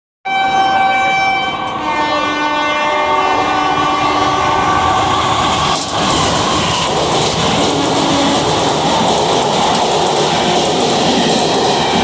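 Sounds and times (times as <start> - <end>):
train horn: 0.3 - 5.5, 7.6 - 8.5
train rumbling: 0.6 - 12.0.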